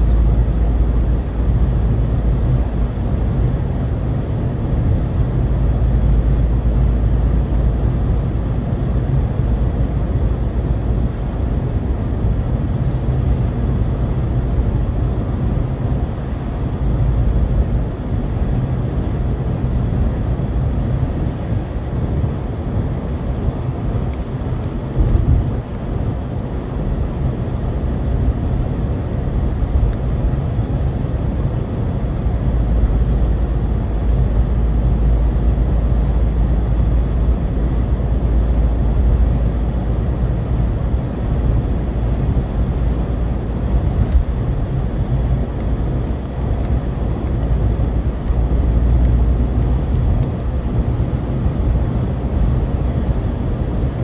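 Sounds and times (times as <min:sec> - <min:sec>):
car road noise: 0:00.0 - 0:54.0.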